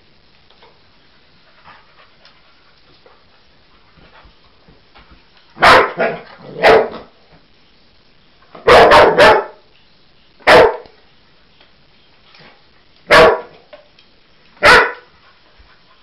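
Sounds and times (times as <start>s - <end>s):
dog barking: 5.6s - 7.1s, 8.6s - 9.6s, 10.4s - 10.9s, 13.1s - 13.6s, 14.6s - 15.1s.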